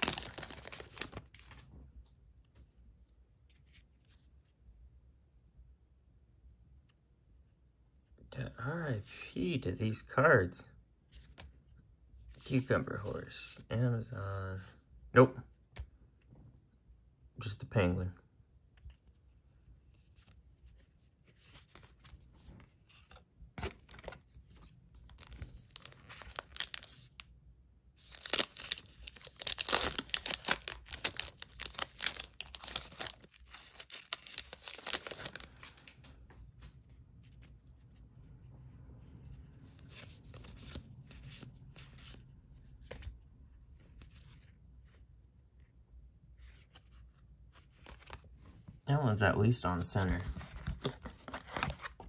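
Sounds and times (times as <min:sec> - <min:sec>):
foil wrapper tearing and crinkling: 0:00.0 - 0:01.5, 0:25.2 - 0:27.2, 0:28.0 - 0:35.9
rustles and clicks of handling: 0:29.7 - 0:38.4.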